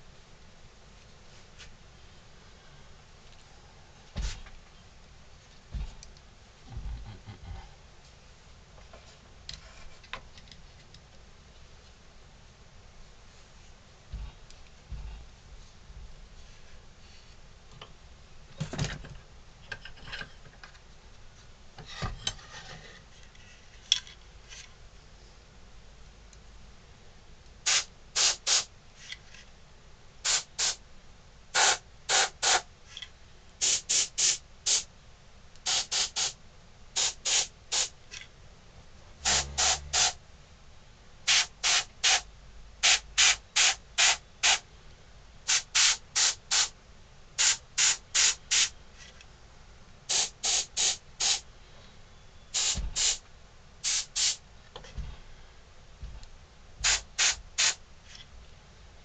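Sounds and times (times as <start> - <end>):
airbrush hissing in short puffs: 27.7 - 28.7, 31.6 - 32.6, 37.0 - 37.9, 39.2 - 40.2, 41.3 - 42.2, 42.8 - 44.6, 45.5 - 46.7, 47.4 - 48.7, 50.1 - 51.4, 52.6 - 53.2, 53.8 - 54.4, 56.8 - 57.8.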